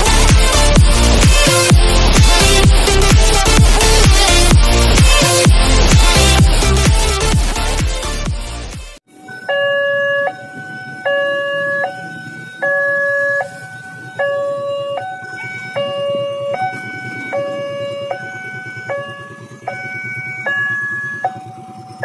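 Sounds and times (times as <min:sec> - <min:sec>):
level crossing two-note alarm chime: 0:09.1 - 0:22.0.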